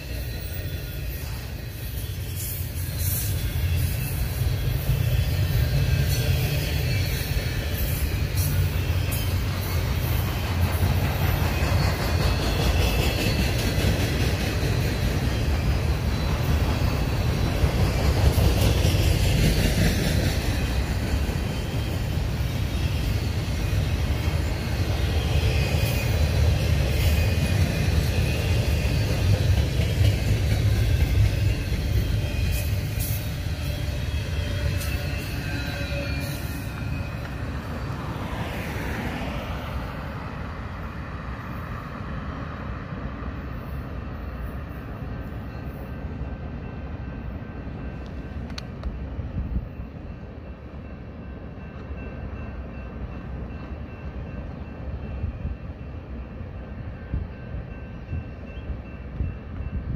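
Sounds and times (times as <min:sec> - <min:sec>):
high wheel squeal: 0:00.0 - 0:40.0
train cars rumbling and rattling: 0:00.0 - 0:59.9.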